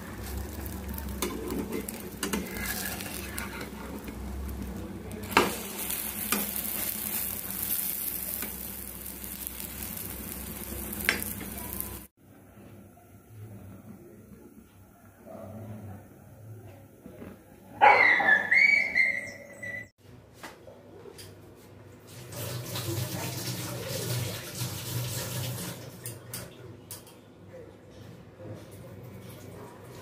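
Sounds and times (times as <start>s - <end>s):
omelette sizzling in frying pan: 0.0s - 12.1s
spatula scraping and knocking pan: 1.0s - 7.2s.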